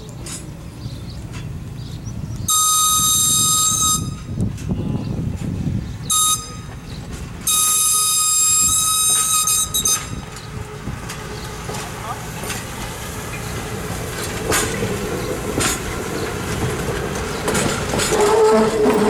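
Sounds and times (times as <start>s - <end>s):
train rumbling: 0.0s - 19.0s
train whistle blasts: 2.5s - 4.3s, 6.1s - 6.7s, 7.5s - 10.1s.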